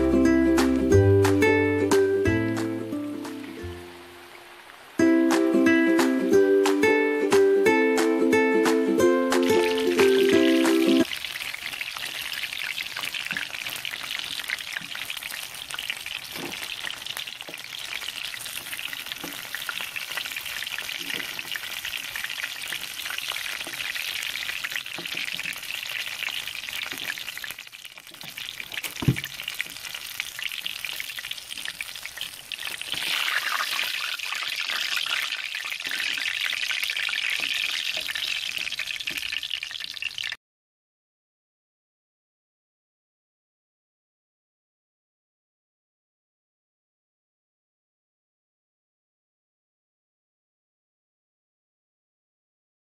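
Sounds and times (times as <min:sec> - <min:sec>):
food deep-frying in oil: 0:00.0 - 0:07.5, 0:09.3 - 0:40.4.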